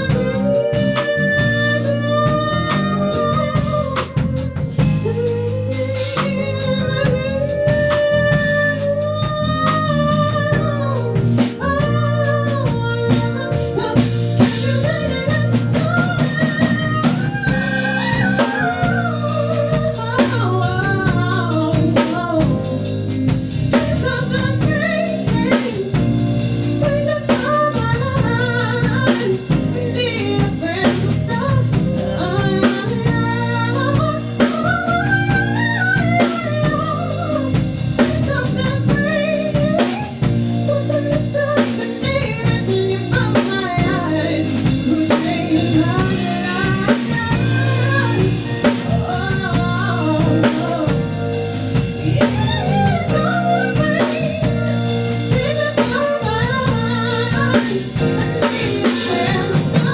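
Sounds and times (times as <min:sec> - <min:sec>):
bass: 0:00.0 - 0:59.9
blues lead melody: 0:00.0 - 0:59.9
drum kit: 0:00.0 - 0:59.9.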